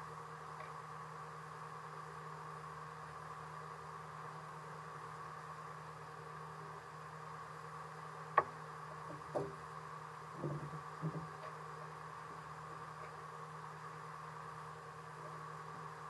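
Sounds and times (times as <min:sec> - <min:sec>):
short knocks: 0:08.4 - 0:09.6, 0:10.4 - 0:11.4.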